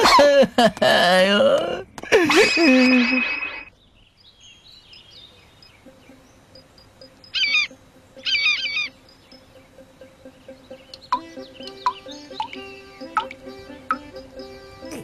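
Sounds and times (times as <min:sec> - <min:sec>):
rapid bird warbling: 0:04.3 - 0:13.4
soft background music tone: 0:04.8 - 0:15.0
cartoon bird chirps: 0:07.3 - 0:08.9.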